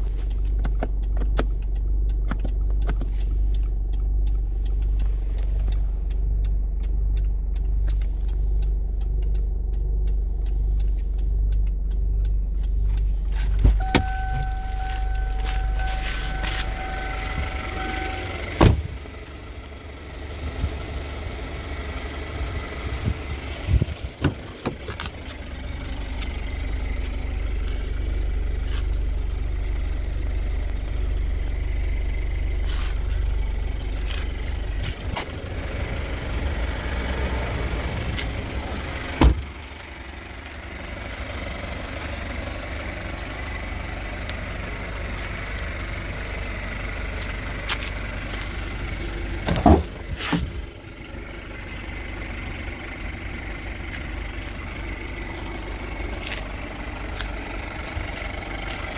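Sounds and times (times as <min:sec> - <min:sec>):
steady low rumble: 0:00.0 - 0:58.9
car doors thumping shut: 0:13.6 - 0:14.5, 0:18.6 - 0:19.0, 0:24.1 - 0:24.8, 0:39.2 - 0:39.5, 0:49.4 - 0:50.5.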